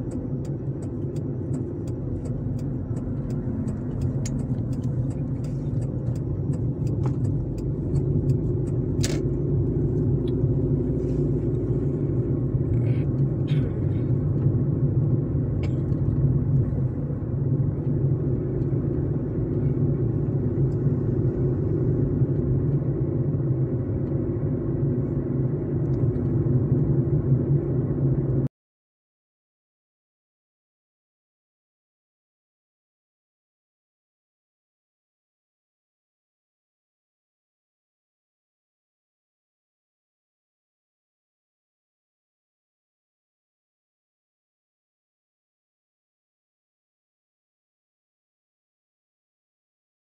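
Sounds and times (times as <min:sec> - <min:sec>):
car engine and road rumble: 0:00.0 - 0:28.5.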